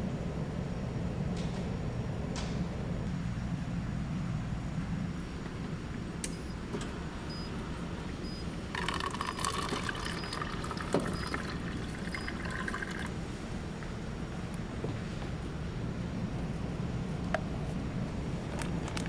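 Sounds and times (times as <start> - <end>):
water running: 8.7 - 13.1.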